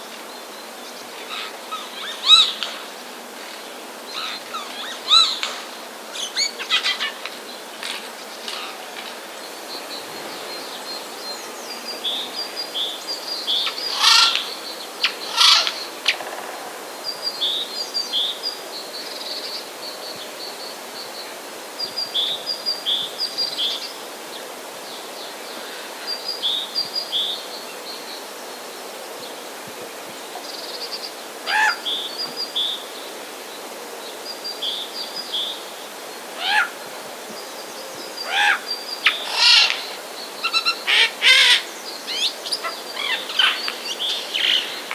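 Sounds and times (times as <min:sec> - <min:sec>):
jay screech calls: 0:38.3 - 0:40.0.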